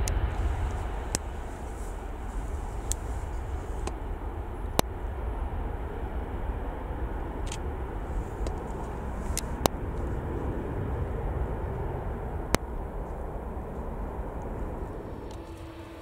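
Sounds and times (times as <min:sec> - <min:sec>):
jet engines rumbling: 0:00.0 - 0:16.0
sharp clicks: 0:07.4 - 0:07.6.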